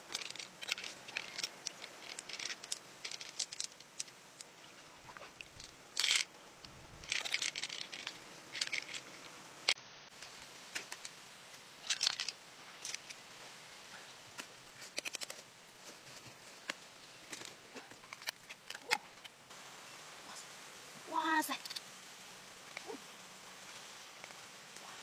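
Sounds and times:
pearls clicking and rattling: 0.0 - 4.5, 5.4 - 6.4, 7.0 - 9.4, 11.8 - 13.2.

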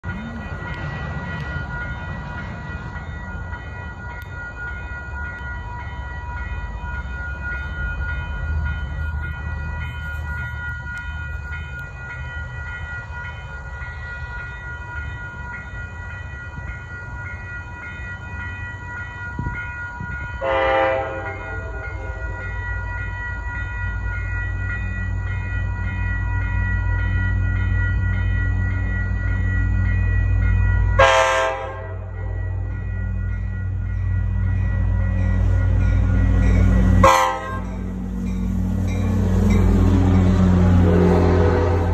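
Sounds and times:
diesel locomotive rumble: 0.0 - 41.9
train horn blast: 20.4 - 22.4, 31.0 - 32.4, 37.0 - 37.8, 40.5 - 41.9.

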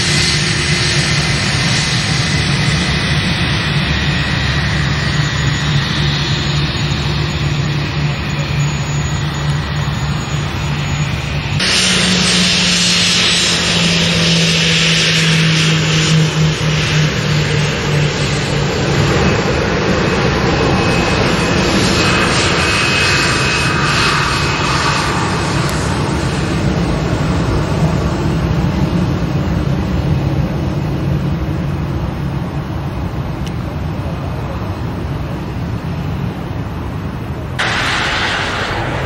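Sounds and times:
low hum: 0.0 - 21.2, 37.6 - 39.0
jet engines running: 0.0 - 39.0.

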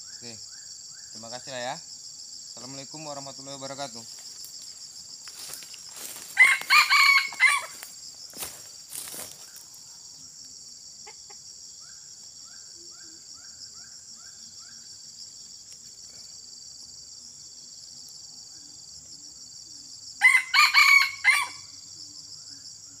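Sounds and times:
rooster crowing: 6.0 - 7.9, 20.2 - 21.8.

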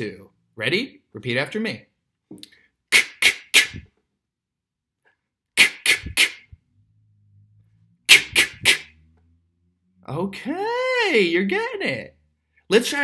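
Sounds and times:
beatboxed snare sounds: 2.9 - 3.9, 5.6 - 6.6, 8.1 - 9.0.

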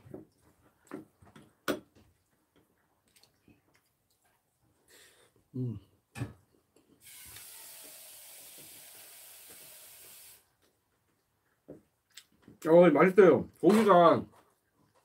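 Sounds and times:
man humming while eating: 5.5 - 5.9
water running from a tap: 7.0 - 10.4.

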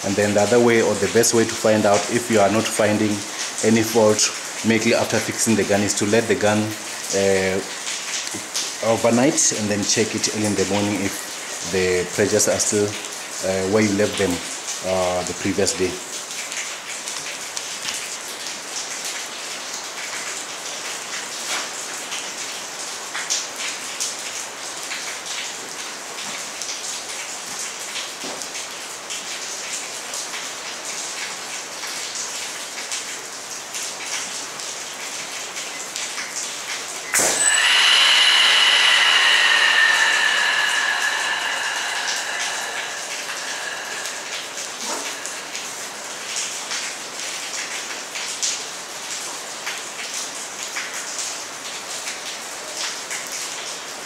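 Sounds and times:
rain on hard surfaces: 0.0 - 54.0
high-pressure air hissing: 37.2 - 46.2.

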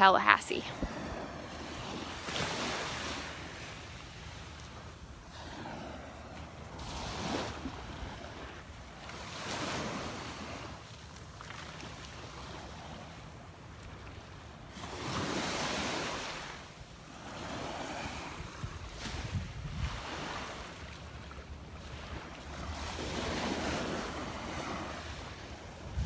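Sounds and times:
small waves washing on sand: 0.5 - 26.0
wind rumble on microphone: 17.4 - 20.7, 21.9 - 26.0.

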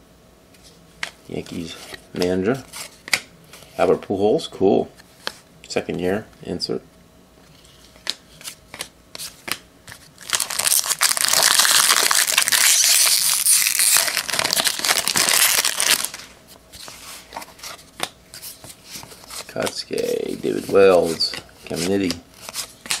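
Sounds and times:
foil wrapper crinkling: 10.2 - 16.3.

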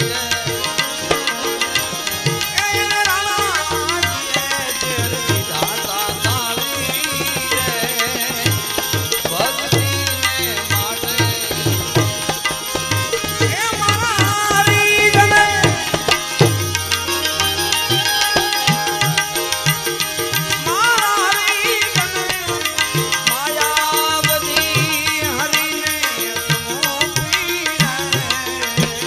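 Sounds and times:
harmonium: 0.0 - 29.0
man singing ornamented melody: 0.0 - 29.0
hand drum beat: 5.0 - 19.8.

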